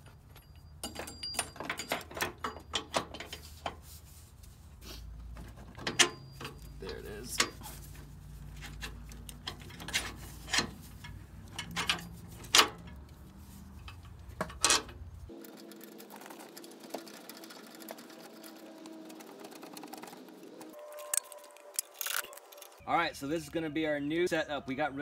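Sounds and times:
metal clicks and knocks: 0.0s - 3.8s, 5.4s - 7.7s, 8.5s - 15.2s.

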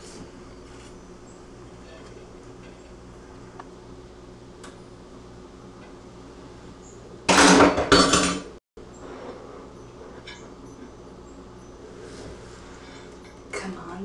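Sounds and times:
plates and cutlery clattering: 7.3s - 8.5s.

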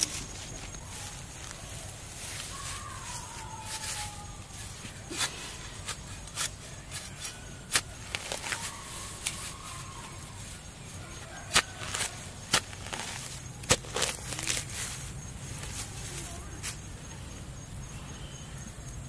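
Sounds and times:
hoe chopping into soil: 11.5s - 14.8s.

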